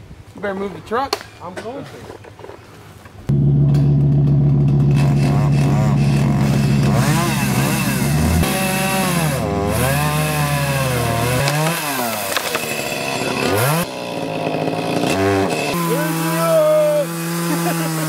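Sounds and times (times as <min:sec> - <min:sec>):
chainsaw cutting wood: 0:03.6 - 0:18.0.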